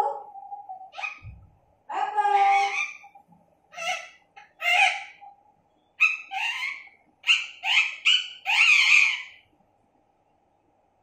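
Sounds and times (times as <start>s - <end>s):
parakeet calling: 0.8s - 1.4s, 2.0s - 9.5s.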